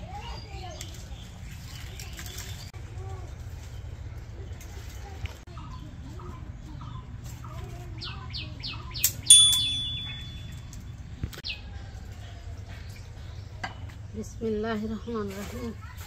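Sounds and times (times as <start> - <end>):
birds chirping: 3.5 - 15.8
ringing metallic clang: 9.3 - 10.7.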